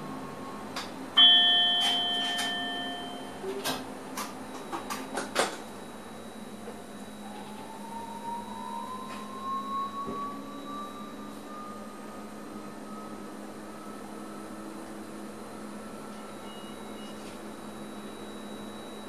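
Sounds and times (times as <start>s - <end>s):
train cab noise: 0.0s - 5.6s
bell-like chime: 1.2s - 3.5s
faint rising whine: 5.9s - 19.0s.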